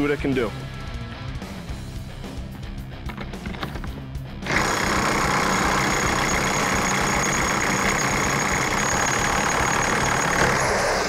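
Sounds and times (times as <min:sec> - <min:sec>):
impact wrench hammering: 0:04.5 - 0:11.0.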